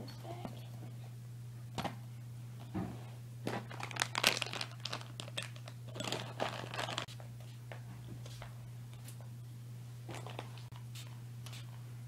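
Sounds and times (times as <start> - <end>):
steady low hum: 0.0 - 12.0
pouch crinkling and rustling: 3.6 - 7.1.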